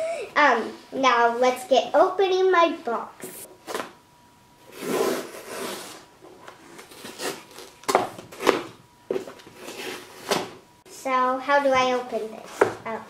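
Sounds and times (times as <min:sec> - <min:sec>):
tape tearing: 0:04.7 - 0:06.0, 0:06.8 - 0:08.7
tape peeling off cardboard: 0:06.8 - 0:08.6.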